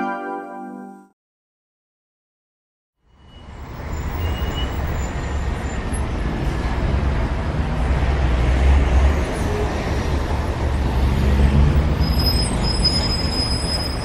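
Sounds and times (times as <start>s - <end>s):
road traffic rumble: 3.0s - 14.0s.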